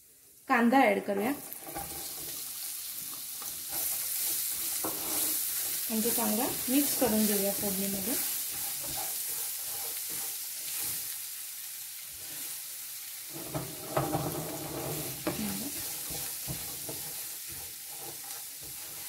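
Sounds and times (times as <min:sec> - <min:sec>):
onion sizzling in frying pan: 0:00.0 - 0:19.0
spatula scraping pan: 0:01.1 - 0:11.3, 0:12.0 - 0:19.0
spatula knocking on pan: 0:13.4 - 0:19.0.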